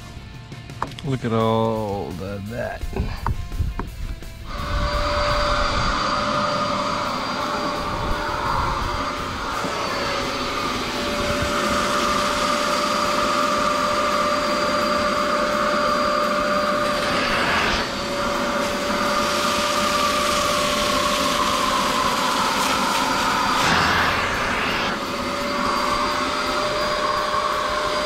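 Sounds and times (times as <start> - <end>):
vacuum cleaner running: 4.1 - 28.0.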